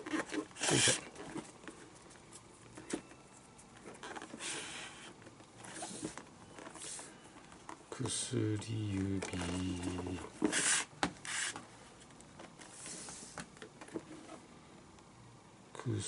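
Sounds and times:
glove rustling and handling: 0.0 - 7.9.

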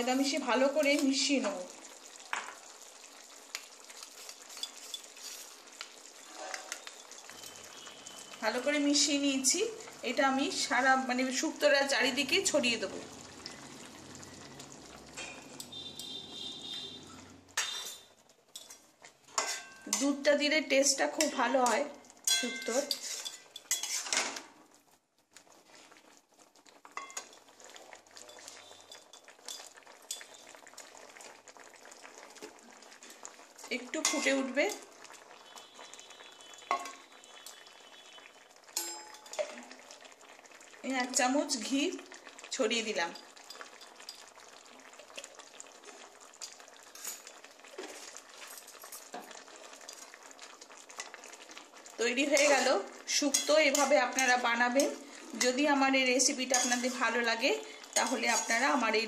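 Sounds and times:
food simmering and bubbling: 0.0 - 59.0
metal spatula scraping a pan: 4.1 - 8.4, 17.1 - 20.2, 21.2 - 24.4, 33.9 - 34.8, 46.4 - 48.6, 52.2 - 58.8.

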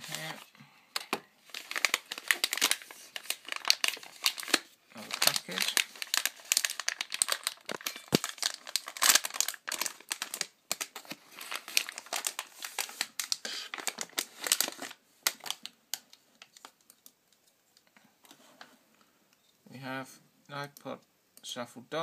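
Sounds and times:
packaging wrapper crinkling: 0.0 - 17.2.

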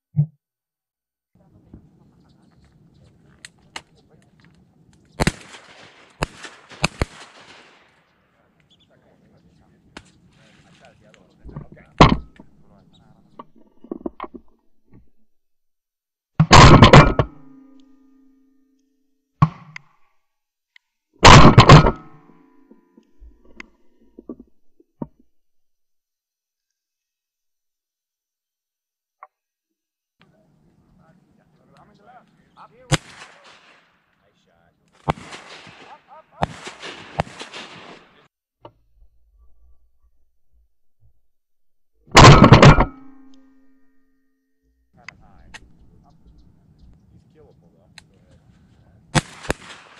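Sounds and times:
shotgun blasts: 5.2 - 8.5, 16.4 - 17.6, 21.2 - 22.2, 32.9 - 34.1, 35.0 - 38.3, 42.1 - 43.1, 49.1 - 49.9.

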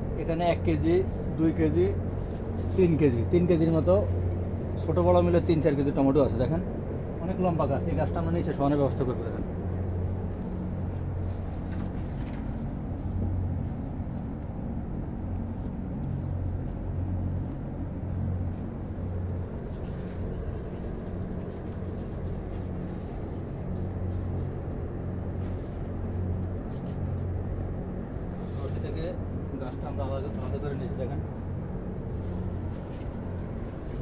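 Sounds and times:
low mechanical hum: 0.0 - 34.0
plants rustling: 10.2 - 14.5, 15.4 - 27.5, 31.3 - 34.0.

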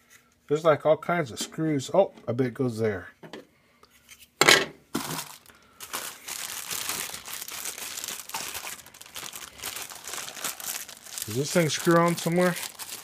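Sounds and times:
packaging crinkling: 5.0 - 13.0.

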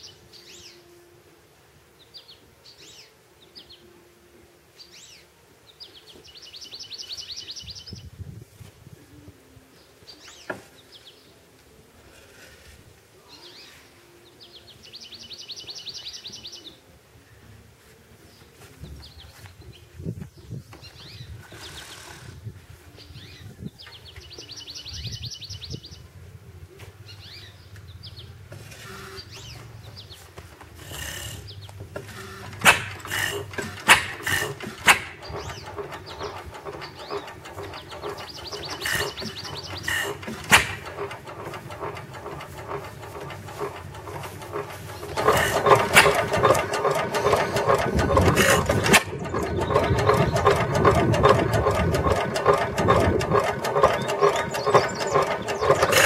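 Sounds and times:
stationary engine clattering: 29.4 - 56.0
engine firing bangs: 31.9 - 56.0.

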